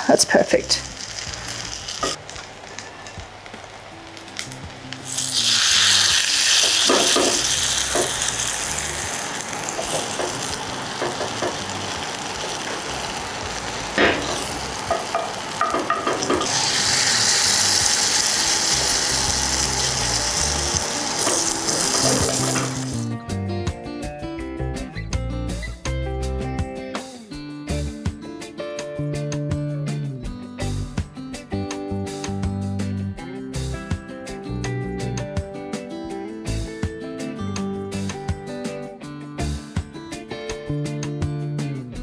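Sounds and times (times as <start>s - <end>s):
batter sizzling in hot oil: 0.1s - 23.1s.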